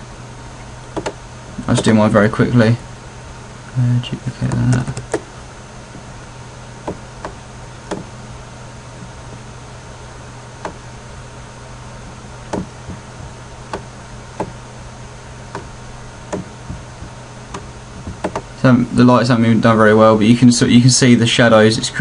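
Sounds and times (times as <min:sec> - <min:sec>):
low hum and hiss: 0:00.0 - 0:22.0
computer mouse clicking: 0:01.0 - 0:01.2, 0:04.5 - 0:05.2.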